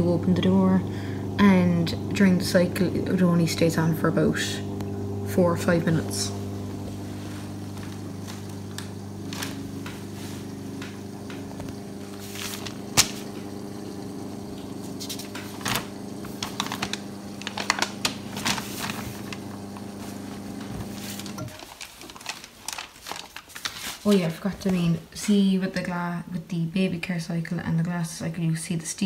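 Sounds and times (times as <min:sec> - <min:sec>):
water inlet valve humming: 0:00.0 - 0:21.6.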